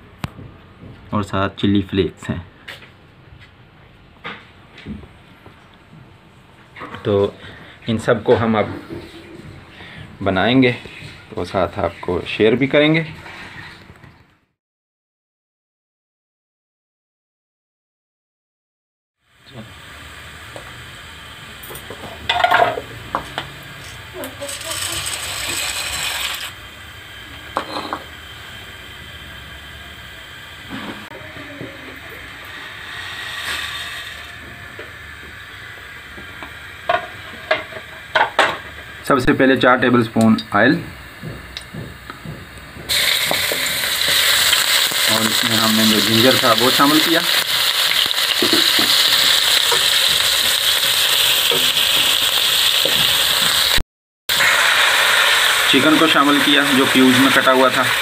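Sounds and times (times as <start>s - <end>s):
ginger sizzling in hot oil: 19.3s - 39.2s, 42.9s - 58.0s
pasta poured into boiling water: 24.3s - 26.6s, 42.9s - 58.0s.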